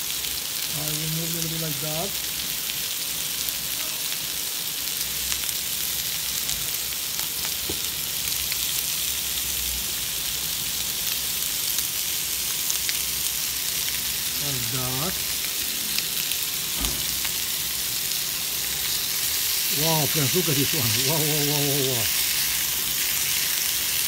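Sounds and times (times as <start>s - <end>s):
chicken sizzling in a pan: 0.0s - 24.0s
small pops and crackles: 6.4s - 8.6s.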